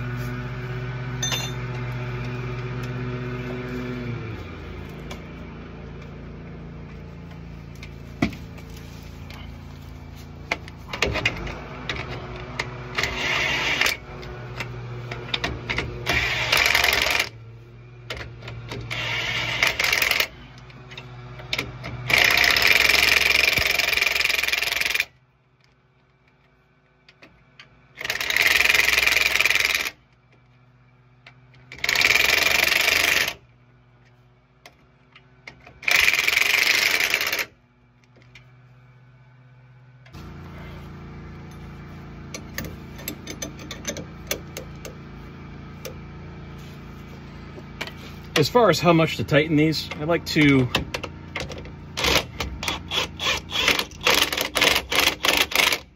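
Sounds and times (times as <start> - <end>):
steady low hum: 0.0 - 55.9
power wrench bursts: 12.9 - 14.0, 15.4 - 17.4, 18.8 - 20.5, 21.5 - 25.1, 27.9 - 30.0, 31.7 - 33.4, 35.7 - 37.6, 49.6 - 55.9.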